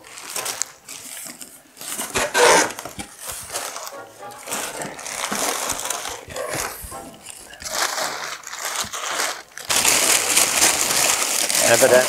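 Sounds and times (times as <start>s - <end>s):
packing paper rustling and crackling: 0.0s - 12.0s.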